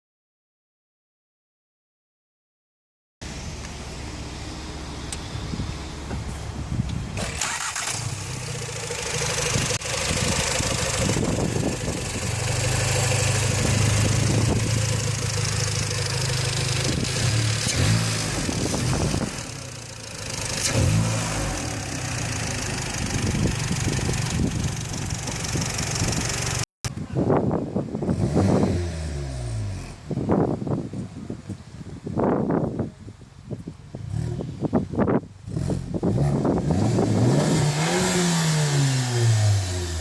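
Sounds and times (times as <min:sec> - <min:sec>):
car engine idling and revving: 0:03.2 - 0:26.7, 0:27.7 - 0:31.0, 0:33.4 - 0:40.0.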